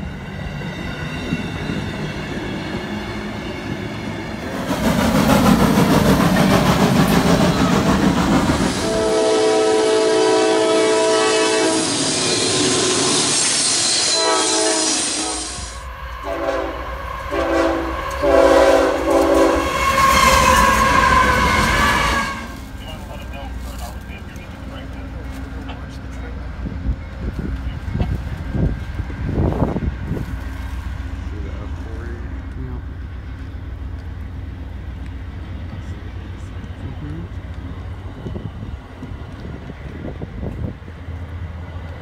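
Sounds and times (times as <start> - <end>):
passenger train wheel noise: 0.0 - 42.0
locomotive air horn: 8.7 - 22.7.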